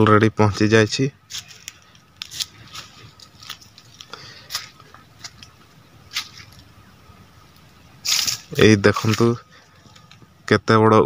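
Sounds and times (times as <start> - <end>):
faint outdoor background noise: 0.0 - 11.0
footsteps crunching on dry leaves: 1.2 - 6.8, 8.0 - 10.3.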